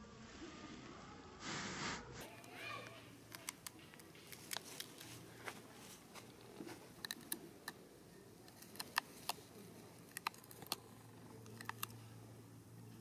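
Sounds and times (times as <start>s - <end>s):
faint low hum: 0.0s - 13.0s
sharp clicks and crackles: 2.3s - 5.2s, 6.2s - 12.2s.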